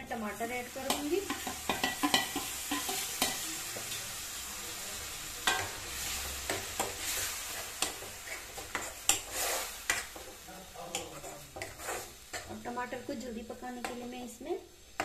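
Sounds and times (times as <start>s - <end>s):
tomatoes sizzling in hot oil: 0.0s - 15.0s
spoon scraping and knocking a pan: 0.8s - 4.0s, 5.4s - 12.7s.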